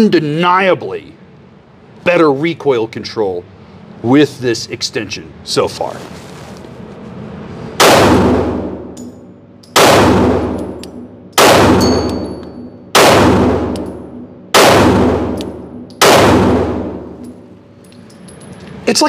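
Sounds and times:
pistol shots echoing indoors: 7.8s - 17.4s.

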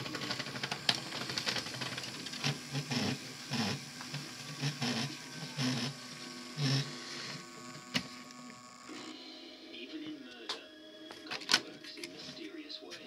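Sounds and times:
small electric motor whirring: 0.0s - 9.2s.

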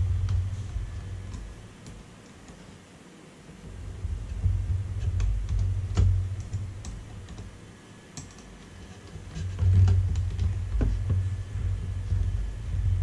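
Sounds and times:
low rumble: 0.0s - 1.7s, 9.4s - 13.0s.

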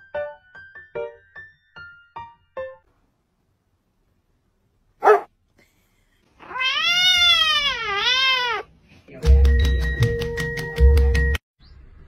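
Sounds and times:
kitten meowing: 6.4s - 8.7s.

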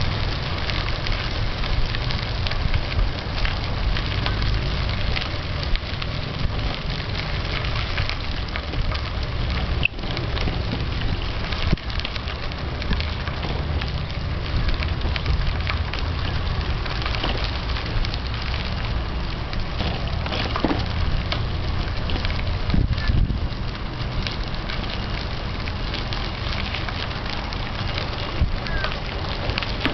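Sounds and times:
bicycle tyres on fine gravel: 0.0s - 29.9s
low rumble: 0.0s - 29.9s.

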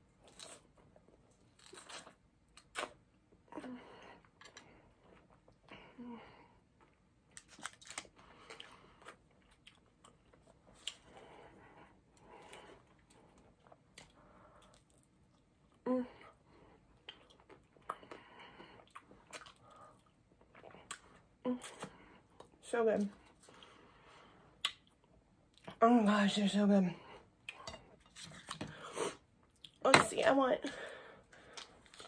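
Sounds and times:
person chewing crunchy food: 6.8s - 11.5s, 16.9s - 22.5s.

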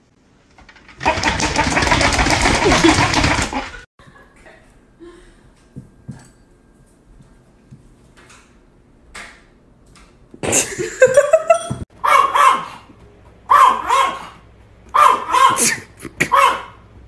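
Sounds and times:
small dog yapping: 12.0s - 12.8s, 13.5s - 16.8s.

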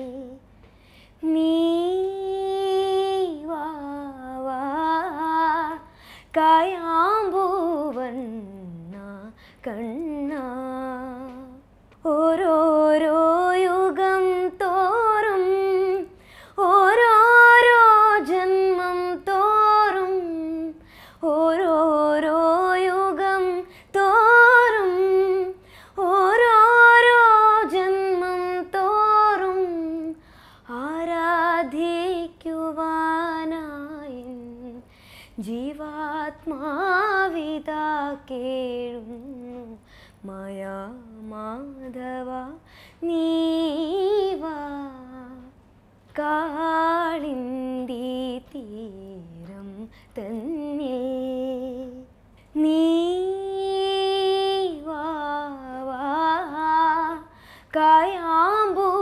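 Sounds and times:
girl singing unaccompanied: 0.0s - 0.6s, 1.2s - 59.0s
girl breathing: 5.9s - 6.3s, 16.2s - 16.6s, 20.8s - 21.2s, 25.6s - 26.0s, 30.2s - 30.7s, 34.9s - 35.4s, 42.6s - 43.0s, 57.3s - 57.7s.

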